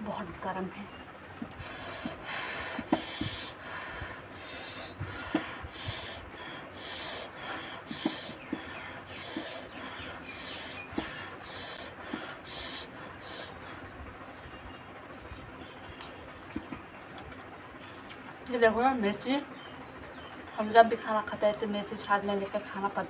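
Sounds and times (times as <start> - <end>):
person blowing air through mouth: 1.5 - 13.6
wet chewing: 15.2 - 18.5.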